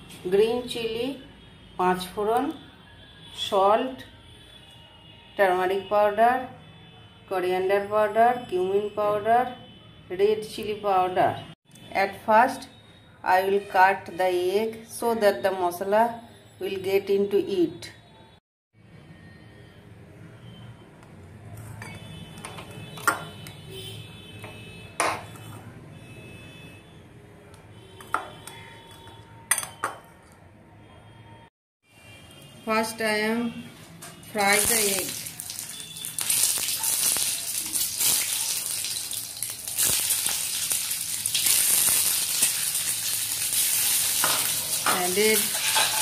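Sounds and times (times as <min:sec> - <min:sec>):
eggs sizzling in hot oil: 0:34.4 - 0:46.0.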